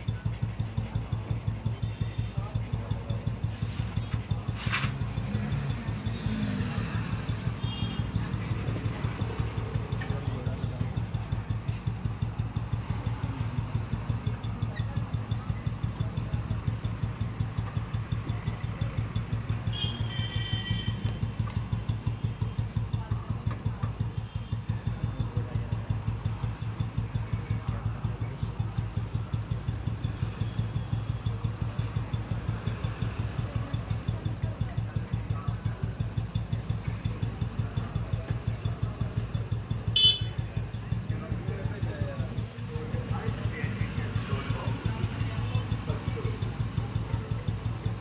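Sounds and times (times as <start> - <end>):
motorcycle engine idling: 0.0 - 48.0.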